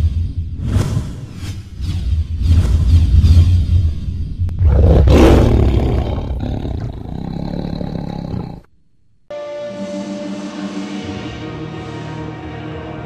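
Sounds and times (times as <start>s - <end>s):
tiger roar: 4.6s - 8.7s.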